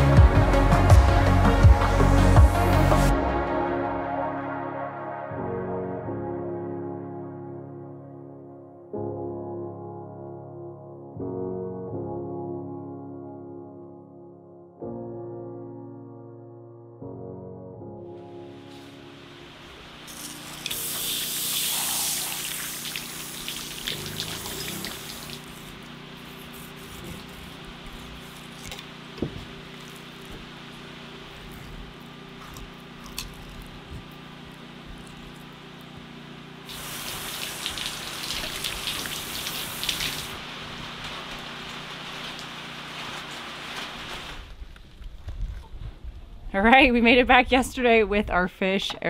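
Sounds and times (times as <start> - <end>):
steady low hum: 18.9 - 43.8
running water splashing: 20.0 - 44.0.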